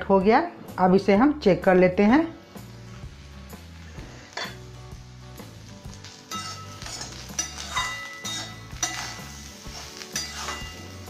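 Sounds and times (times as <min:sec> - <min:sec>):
metal spatula scraping pan: 0:06.0 - 0:11.0
metal clinks against pan: 0:06.3 - 0:09.2, 0:10.2 - 0:10.9.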